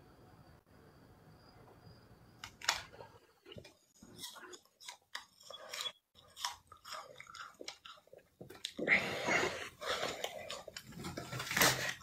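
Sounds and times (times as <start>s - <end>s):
crunching bites and chews: 4.1s - 8.9s.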